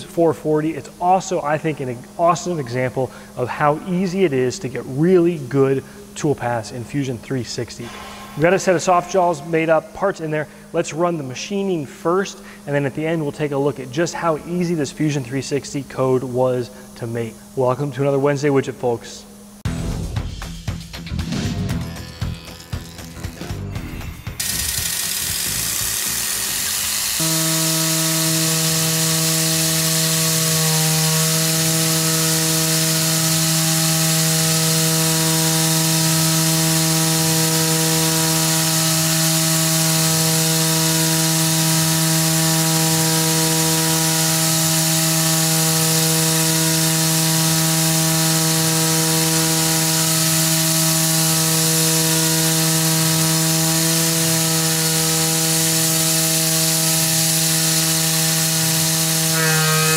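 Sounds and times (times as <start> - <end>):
milling machine cutting metal: 21.6 - 59.9.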